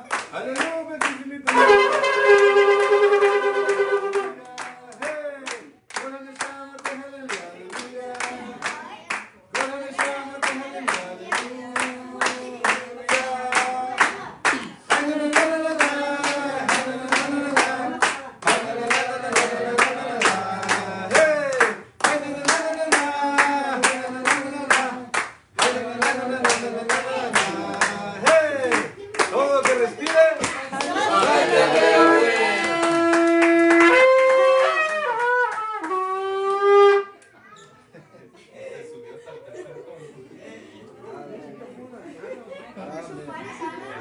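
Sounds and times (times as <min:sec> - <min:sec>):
people clapping in rhythm: 0:00.0 - 0:36.7
group singing: 0:01.5 - 0:29.9, 0:30.7 - 0:33.0.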